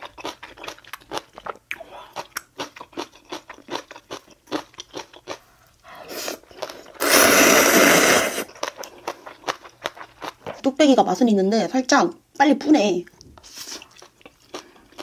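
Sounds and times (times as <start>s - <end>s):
crunchy chewing: 0.0s - 7.8s, 8.4s - 10.6s, 13.1s - 15.0s
slurping noodles: 6.0s - 8.6s.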